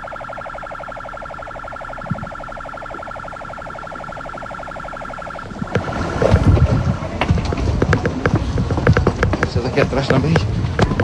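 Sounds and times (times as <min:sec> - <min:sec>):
police siren warbling: 0:00.0 - 0:07.1.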